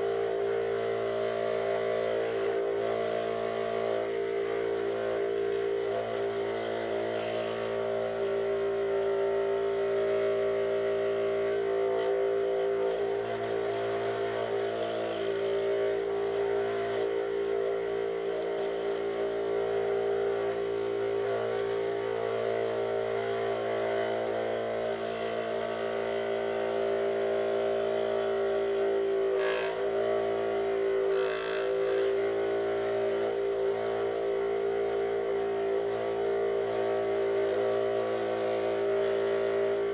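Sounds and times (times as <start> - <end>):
scroll saw cutting plywood: 20.3 - 34.2.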